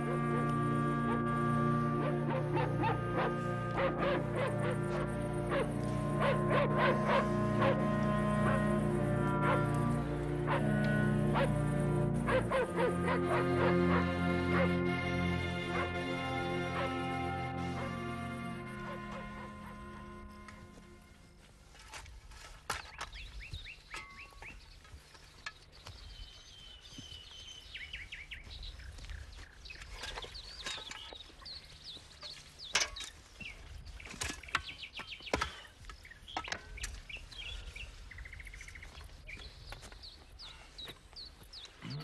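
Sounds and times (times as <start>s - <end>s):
songbirds chirping: 0.0s - 42.0s
shovels digging into soil: 29.7s - 37.3s.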